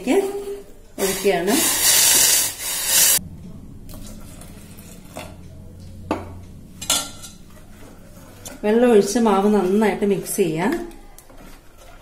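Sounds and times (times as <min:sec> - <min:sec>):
boiling water pouring with hissing splash: 0:01.0 - 0:03.2.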